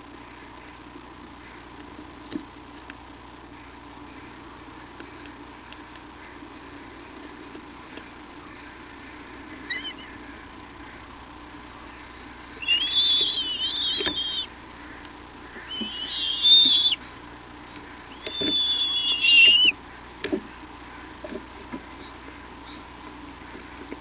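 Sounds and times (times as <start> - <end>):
eagle whistling squeals: 9.7 - 10.1, 12.6 - 14.5, 15.7 - 17.0, 18.1 - 19.8.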